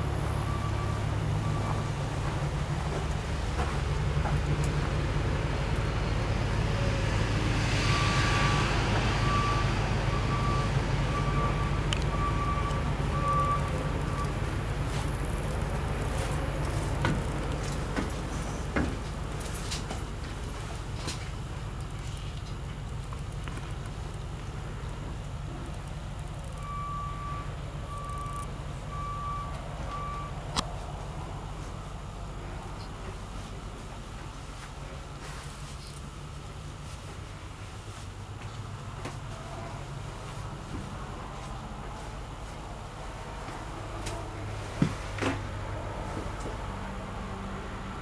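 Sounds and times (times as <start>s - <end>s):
reversing alarm beeping: 0.0s - 3.1s, 7.8s - 15.5s, 26.4s - 30.4s.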